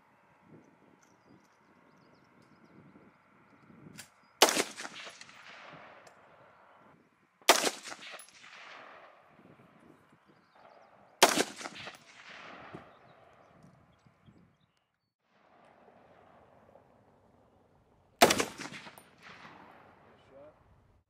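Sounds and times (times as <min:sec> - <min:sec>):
rifle shots with echo: 0:04.4 - 0:06.7, 0:07.5 - 0:09.8, 0:10.6 - 0:13.6, 0:18.2 - 0:20.3.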